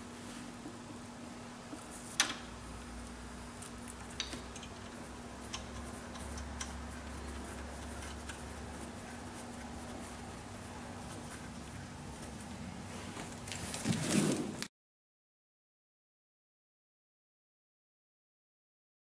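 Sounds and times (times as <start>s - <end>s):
steady low hum: 0.0s - 14.2s.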